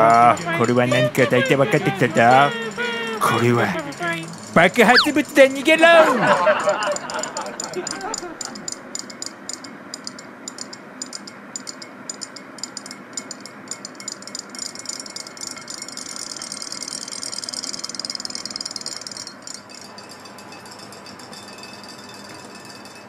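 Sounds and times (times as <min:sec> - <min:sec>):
toy fish motors buzzing: 0:00.0 - 0:05.1.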